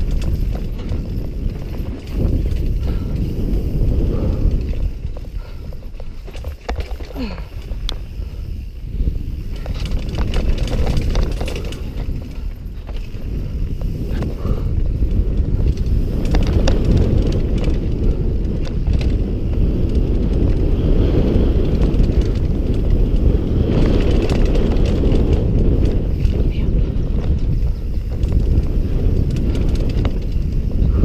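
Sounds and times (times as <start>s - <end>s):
bike clicking and rattling: 0.0s - 31.0s
tyres rolling on dirt: 0.0s - 31.0s
wind on microphone: 0.0s - 31.0s.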